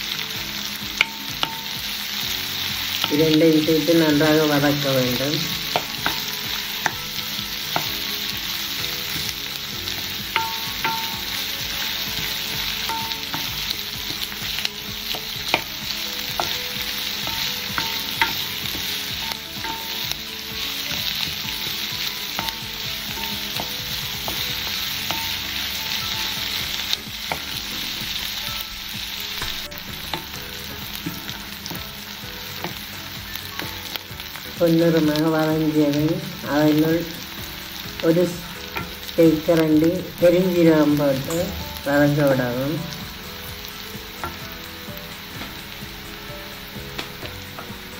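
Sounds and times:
onions sizzling in hot oil: 0:00.0 - 0:47.9
wooden spoon stirring: 0:00.9 - 0:35.0
spoon knocking against pan: 0:05.5 - 0:28.6, 0:29.4 - 0:34.5, 0:44.2 - 0:44.6, 0:46.8 - 0:47.8.

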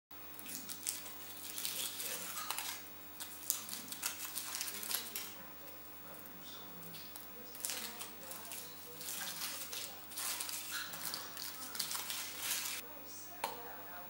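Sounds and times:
foil wrapper crinkling: 0:00.4 - 0:05.4, 0:07.4 - 0:12.8.

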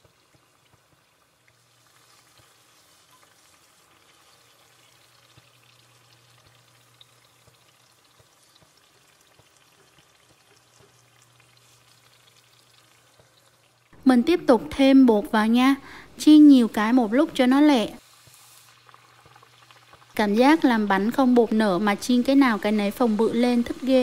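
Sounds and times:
dough sizzling in hot oil: 0:00.0 - 0:24.0
oil pops and crackles: 0:18.2 - 0:20.2.

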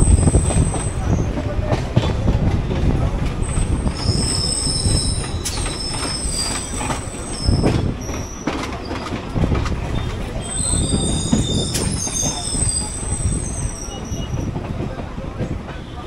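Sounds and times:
train rumbling on rails: 0:00.0 - 0:16.0
high wheel squeal: 0:03.4 - 0:09.0, 0:10.0 - 0:14.5.

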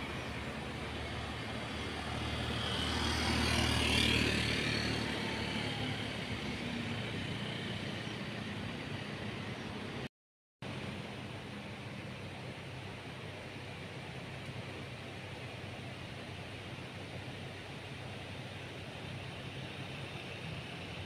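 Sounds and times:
street traffic hum: 0:00.0 - 0:21.0
vehicle passing close by: 0:01.6 - 0:07.9.

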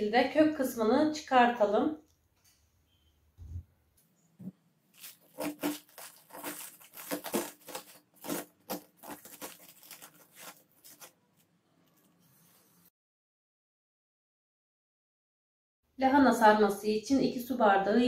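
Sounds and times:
cabbage crunching and snapping: 0:04.9 - 0:11.1.

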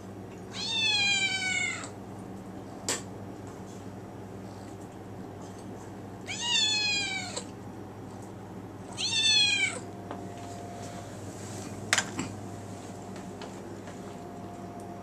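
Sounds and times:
kitten meowing: 0:06.3 - 0:07.4, 0:09.0 - 0:09.8.

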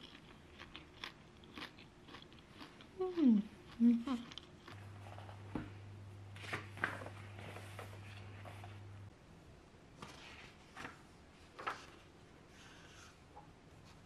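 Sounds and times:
low hum: 0:02.8 - 0:09.6.

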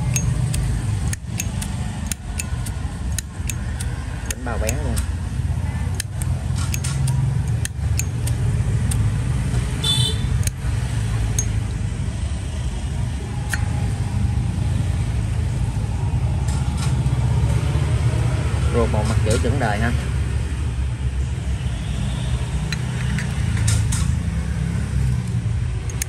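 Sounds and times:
lighter metal clicks: 0:00.0 - 0:05.2, 0:05.9 - 0:09.0, 0:10.4 - 0:10.6, 0:13.5 - 0:13.7.

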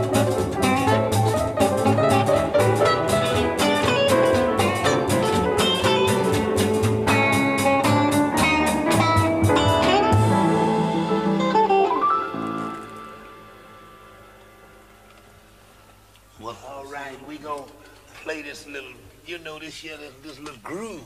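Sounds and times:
steady drum beat: 0:00.0 - 0:11.1
blues guitar: 0:00.0 - 0:15.6.

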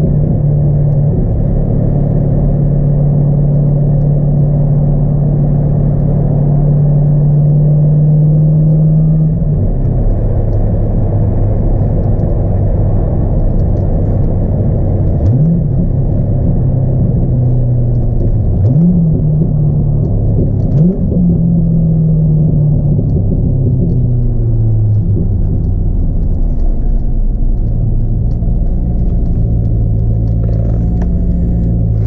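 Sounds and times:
car engine droning while driving: 0:00.0 - 0:32.0
engine revving: 0:15.1 - 0:25.7, 0:27.6 - 0:32.0.

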